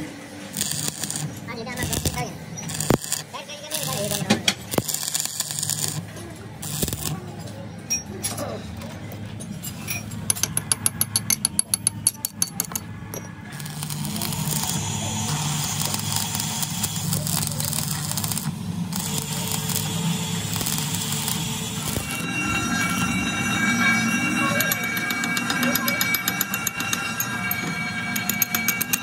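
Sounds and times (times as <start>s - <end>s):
welding arc crackling and hissing: 0.4s - 7.2s, 13.6s - 22.3s
low hum: 18.2s - 29.0s.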